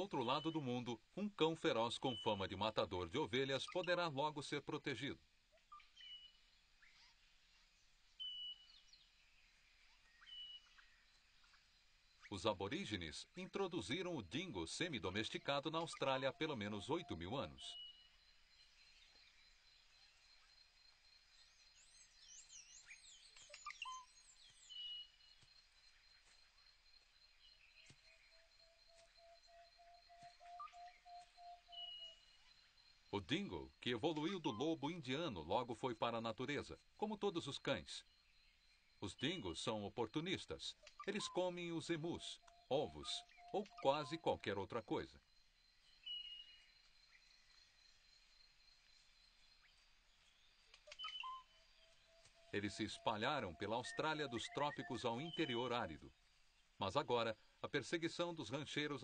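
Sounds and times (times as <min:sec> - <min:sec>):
birds chirping and whistling: 0:00.0 - 0:00.9, 0:05.6 - 0:07.2, 0:08.1 - 0:11.6, 0:13.4 - 0:20.5, 0:21.3 - 0:25.4, 0:27.3 - 0:36.2, 0:40.8 - 0:45.0, 0:45.7 - 0:57.4
high whistle-like calls: 0:15.1 - 0:18.0, 0:28.4 - 0:32.4, 0:33.2 - 0:35.4, 0:40.8 - 0:45.1, 0:50.8 - 0:56.1.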